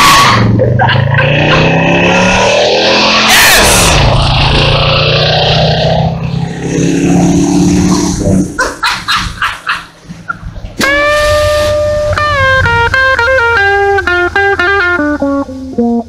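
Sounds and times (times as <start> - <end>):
gliding pitched sound: 0.4 - 8.8, 10.3 - 16.0
electric guitar rock music: 10.8 - 16.0.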